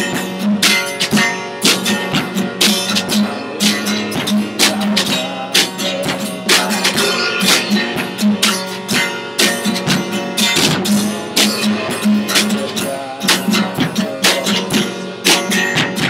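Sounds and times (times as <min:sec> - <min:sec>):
drum kit: 0:00.0 - 0:16.0
strummed acoustic guitar: 0:00.0 - 0:16.0
cymbal crashes: 0:06.9 - 0:08.7
sustained low note: 0:07.0 - 0:08.0.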